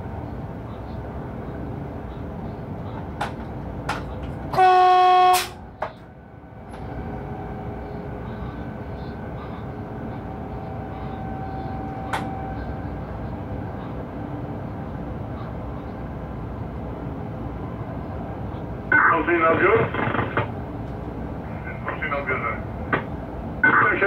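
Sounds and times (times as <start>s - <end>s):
train running rumble: 0.0s - 24.0s
locomotive horn: 4.5s - 5.6s.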